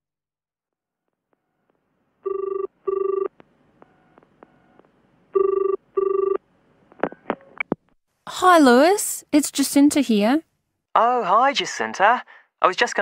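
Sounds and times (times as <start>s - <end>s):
telephone ringing: 2.3s - 3.3s, 5.4s - 6.4s.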